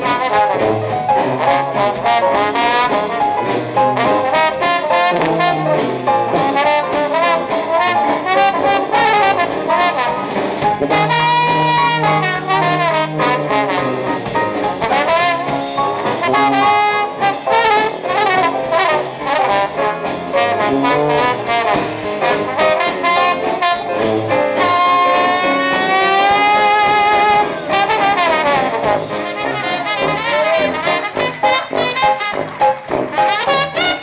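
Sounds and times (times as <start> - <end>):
clarinet: 0.0 - 34.0
drums: 0.0 - 34.0
piano: 0.0 - 34.0
trombone: 0.0 - 34.0.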